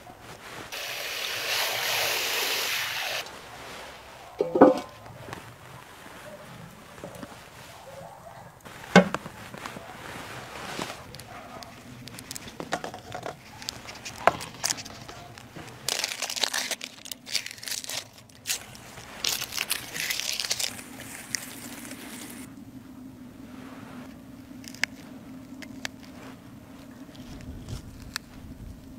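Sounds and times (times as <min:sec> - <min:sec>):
onion skin crinkling: 0:08.6 - 0:22.5, 0:24.1 - 0:28.9.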